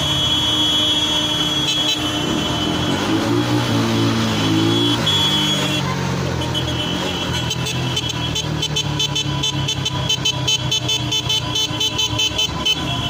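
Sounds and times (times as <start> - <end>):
diesel tractor engines: 0.0 - 13.0
horn tooting rapidly: 0.0 - 13.0.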